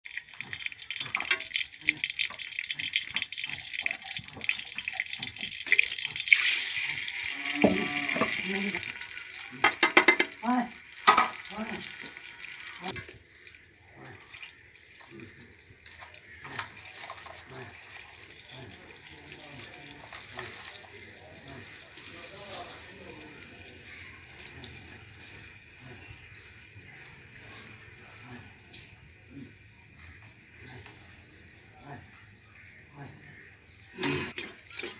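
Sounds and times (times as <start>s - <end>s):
oil sizzling in a pot: 0.1s - 34.9s.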